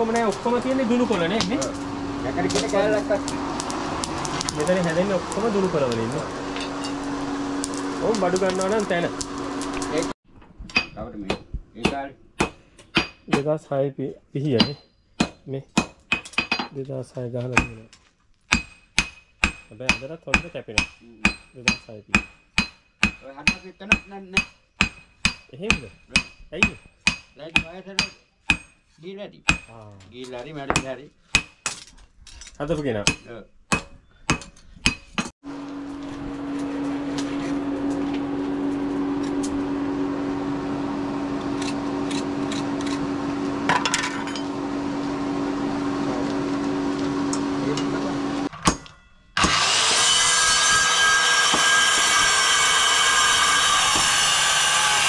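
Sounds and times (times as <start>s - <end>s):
steady motor hum: 0.0s - 10.2s, 35.4s - 48.5s
hammers striking steel on anvil: 10.7s - 13.5s, 14.5s - 16.7s, 17.5s - 17.9s, 18.5s - 31.9s, 32.8s - 35.3s, 48.5s - 54.2s
electric jigsaw cutting: 49.4s - 55.0s.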